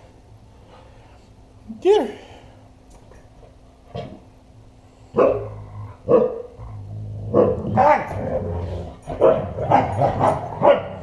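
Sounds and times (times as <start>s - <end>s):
dogs barking: 5.1s - 6.6s, 7.3s - 8.4s, 9.0s - 11.0s
dogs growling: 5.1s - 11.0s.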